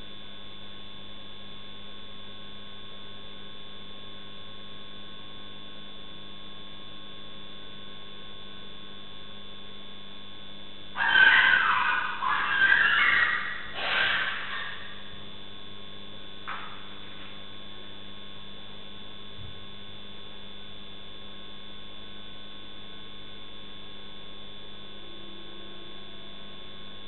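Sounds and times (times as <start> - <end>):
electrical mains hum: 0.0 - 27.0
short noisy bursts: 11.0 - 15.2.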